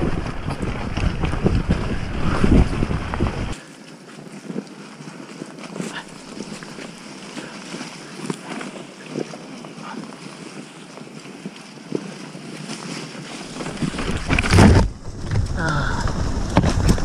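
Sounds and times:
wind noise on microphone: 0.0 - 3.6, 7.8 - 17.0
tyres knocking and rustling: 13.4 - 17.0.

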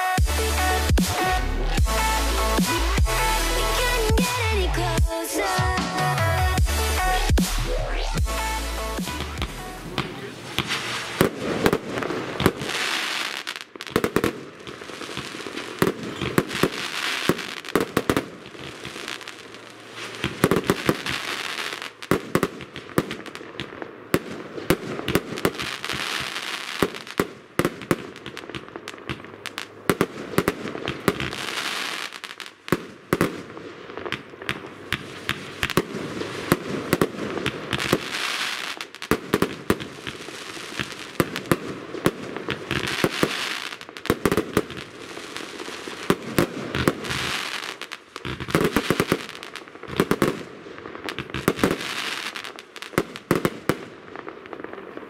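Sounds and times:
firework bangs: 9.0 - 55.0
firework hissing bursts: 10.2 - 13.6.

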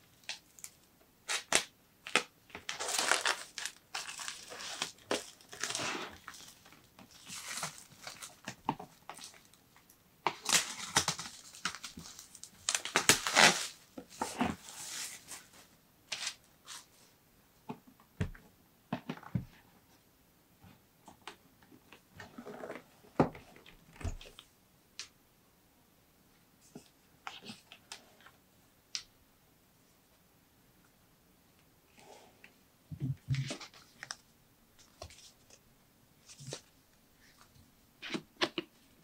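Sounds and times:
plastic wrap crinkling and tearing: 1.3 - 9.5, 10.4 - 15.4.

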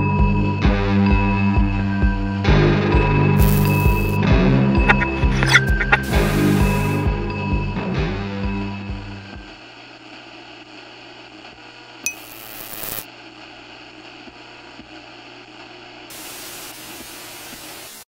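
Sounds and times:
low electrical hum: 3.4 - 4.2, 11.7 - 13.5
static hiss: 3.4 - 4.2, 4.9 - 7.0, 12.1 - 13.1, 16.1 - 18.0.

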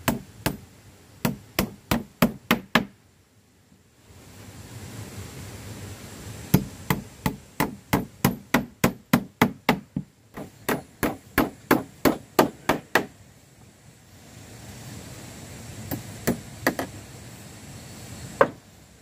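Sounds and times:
hammer striking nails in wood: 1.2 - 2.9, 6.5 - 13.1.

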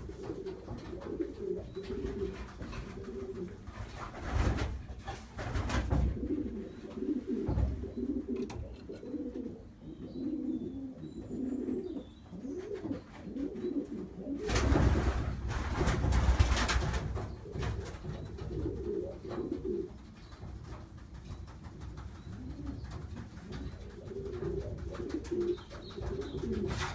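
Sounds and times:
pigeon cooing: 0.0 - 3.7, 5.9 - 14.8, 17.4 - 20.2, 22.3 - 26.9
rustling noise: 0.0 - 9.0.

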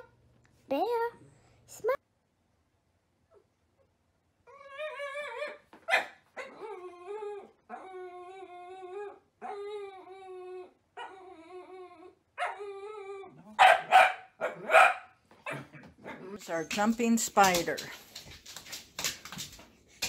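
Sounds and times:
dog whining and howling: 4.4 - 13.6
dog yelping: 4.5 - 16.3
dog barking: 5.9 - 6.5, 12.4 - 12.6, 13.6 - 16.3.

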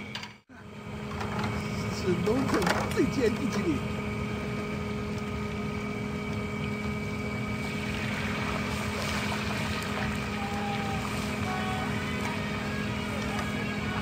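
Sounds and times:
electric blower fan humming: 0.0 - 14.0
oil bubbling and frying in a wok: 4.0 - 14.0
rush of flames: 7.2 - 14.0.

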